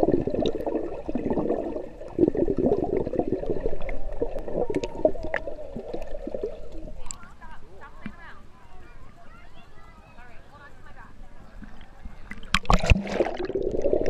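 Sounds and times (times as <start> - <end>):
person exhaling air bubbles: 0.0 - 6.8, 12.7 - 14.0
muffled underwater gurgling: 0.0 - 7.1.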